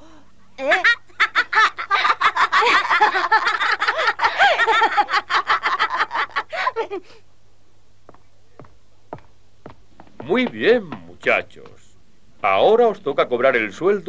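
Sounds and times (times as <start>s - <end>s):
boys laughing: 0.6s - 7.2s
faint taps: 8.1s - 12.0s.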